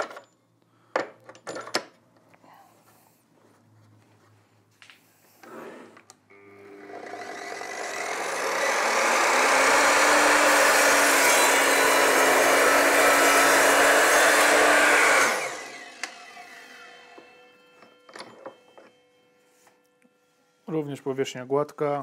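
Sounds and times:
mitre saw cutting board: 6.6 - 18.0.

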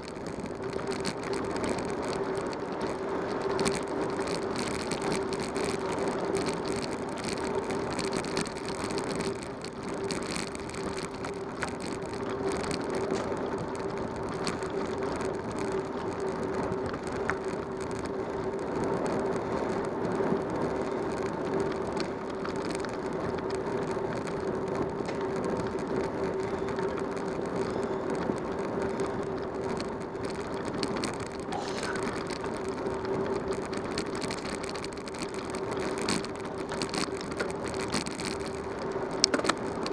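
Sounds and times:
bicycle drivetrain rattling and clicking: 0.0 - 39.9
bicycle rolling on rough pavement: 0.0 - 39.9.

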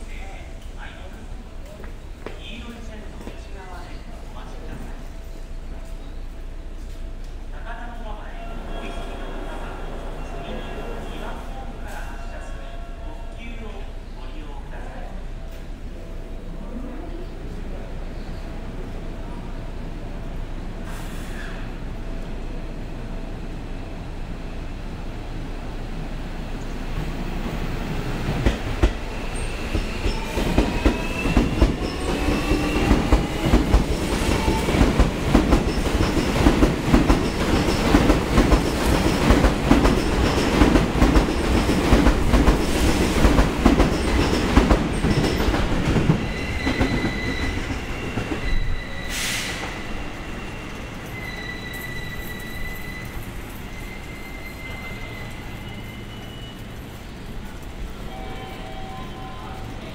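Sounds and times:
high squeal: 29.0 - 33.3, 46.2 - 57.2.

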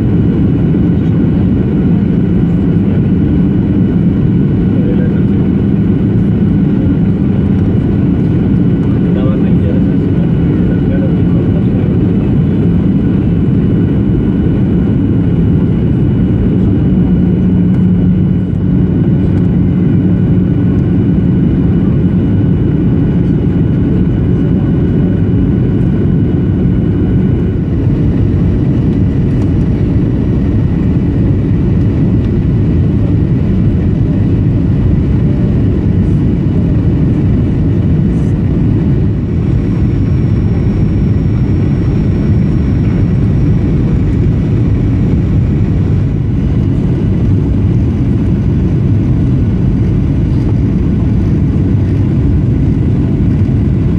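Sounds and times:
airplane cabin engine rumble: 0.0 - 53.9.

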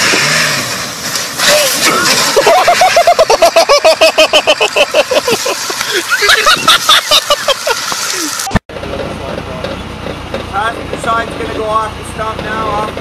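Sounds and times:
person laughing hard: 2.3 - 8.6.

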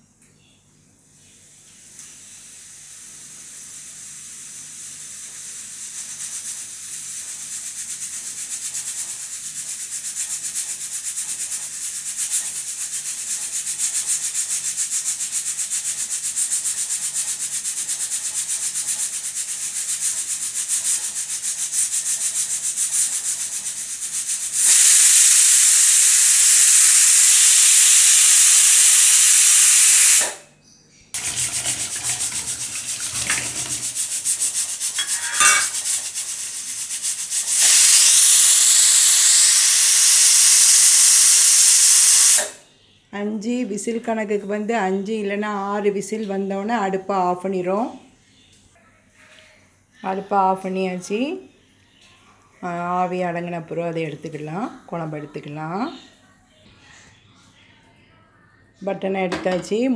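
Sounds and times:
pressure cooker valve hissing: 1.8 - 7.2, 12.0 - 30.4, 31.2 - 42.6
pressure cooker whistle: 24.2 - 30.4, 35.0 - 35.9, 37.4 - 42.6.

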